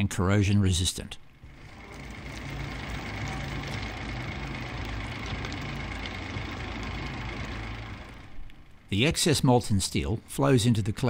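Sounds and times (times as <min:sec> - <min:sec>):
idling engine hum: 0:01.3 - 0:09.1
thermite burning with steady hiss: 0:01.3 - 0:10.5.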